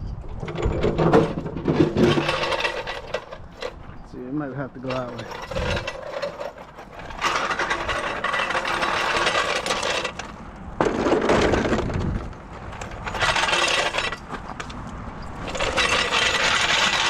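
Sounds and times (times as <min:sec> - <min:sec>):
gravel crunching: 0:00.0 - 0:17.0
metallic clinks and rattles: 0:04.9 - 0:10.3, 0:11.0 - 0:17.0.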